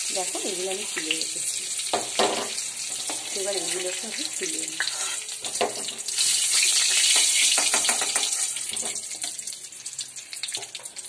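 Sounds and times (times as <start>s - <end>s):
hot oil sizzling in a pan: 0.0s - 11.0s
spatula clicking against pan: 7.0s - 8.4s.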